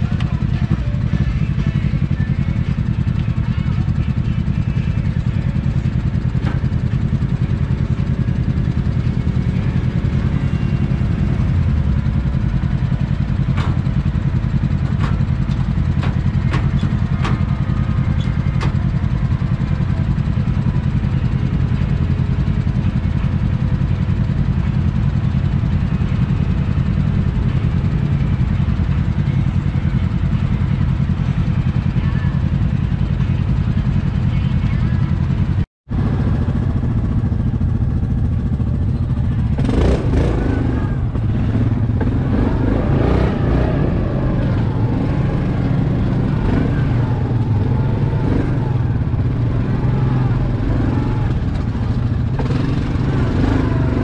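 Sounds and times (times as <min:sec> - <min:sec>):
off-road machines idling: 0:00.0 - 0:54.0
quad engine idling: 0:00.0 - 0:54.0.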